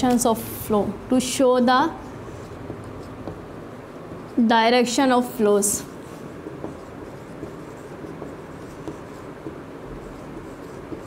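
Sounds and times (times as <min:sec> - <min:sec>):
low room hum: 0:00.0 - 0:11.0
marker scratching on whiteboard: 0:02.0 - 0:11.0.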